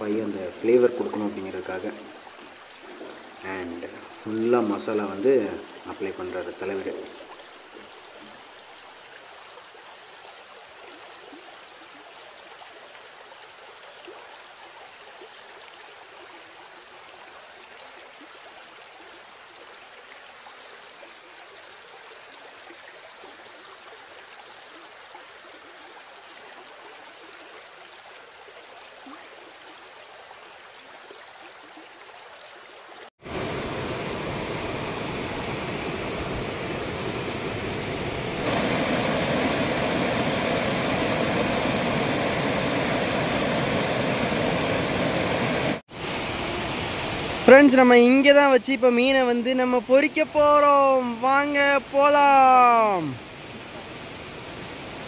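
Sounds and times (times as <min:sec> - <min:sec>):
waterfall rushing: 0:33.2 - 0:55.0.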